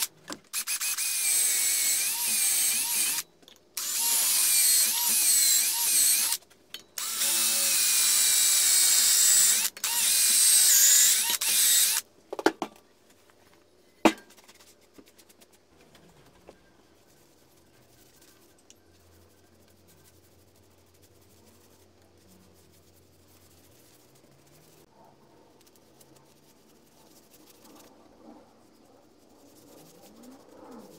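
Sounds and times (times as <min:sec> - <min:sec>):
cordless drill boring into wood: 0:00.0 - 0:03.2, 0:03.8 - 0:06.4, 0:07.0 - 0:12.0.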